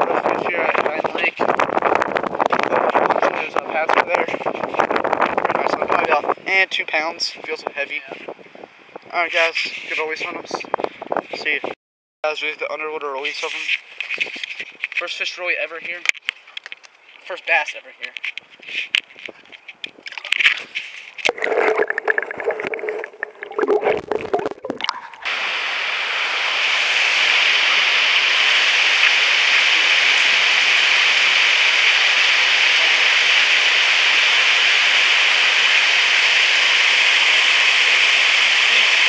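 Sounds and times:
camera handling rustling: 16.0s - 17.3s, 18.0s - 21.4s
water rushing through channel: 21.3s - 39.0s.

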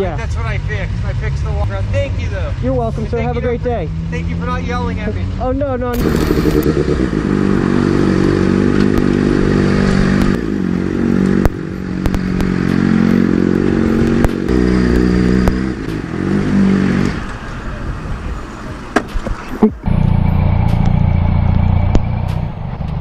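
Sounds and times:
motorcycle engine at low revs: 6.0s - 17.3s.

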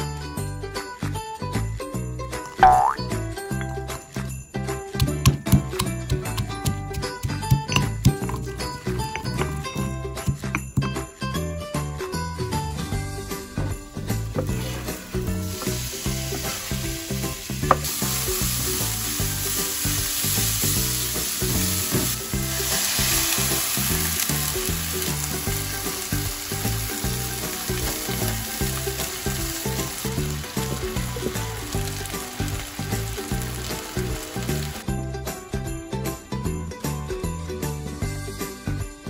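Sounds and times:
food sizzling in a wok: 13.9s - 34.9s.

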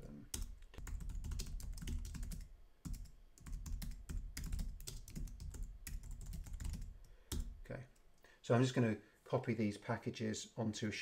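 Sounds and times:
keyboard typing: 0.3s - 7.6s.

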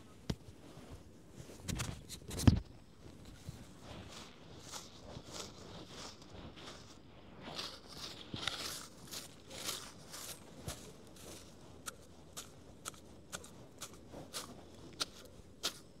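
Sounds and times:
hand tool scraping soil: 3.7s - 16.0s.

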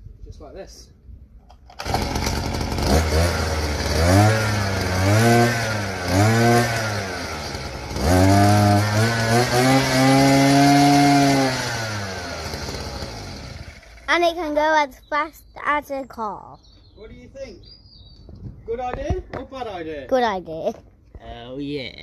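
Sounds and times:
small petrol engine revving: 1.7s - 14.3s.

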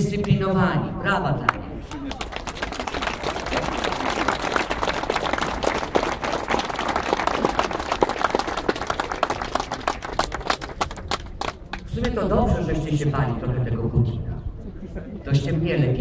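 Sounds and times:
people applauding: 1.8s - 11.9s.

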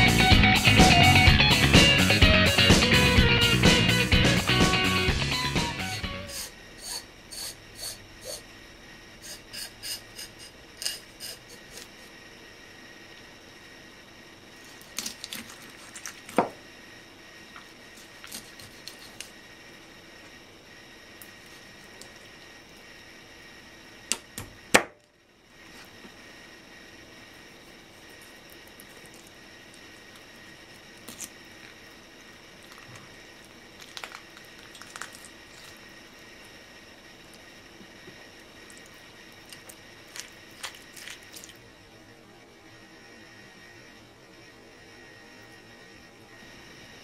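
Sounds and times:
faint steady hum: 0.0s - 47.0s
wet squishing of fish guts: 32.7s - 35.8s, 38.8s - 41.6s
small wet clicks: 33.8s - 35.8s.

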